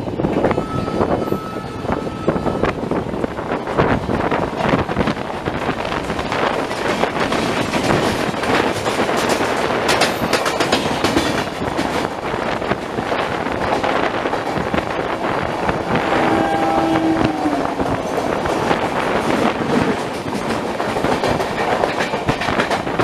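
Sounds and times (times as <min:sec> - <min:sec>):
passing train coaches rushing: 0:00.0 - 0:23.0
train running noise: 0:00.0 - 0:23.0
train wheel clatter: 0:00.0 - 0:23.0.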